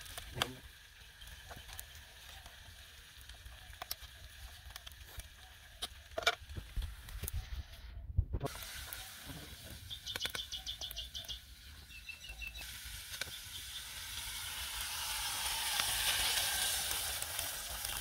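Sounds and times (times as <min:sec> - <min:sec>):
food sizzling in a pot: 0:00.0 - 0:07.1, 0:08.5 - 0:18.0
high chirps: 0:09.8 - 0:12.6.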